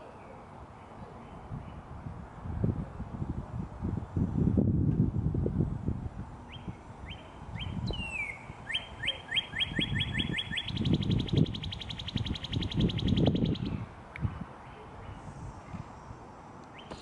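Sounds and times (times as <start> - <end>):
bird singing whistles and trill: 6.5 - 13.8.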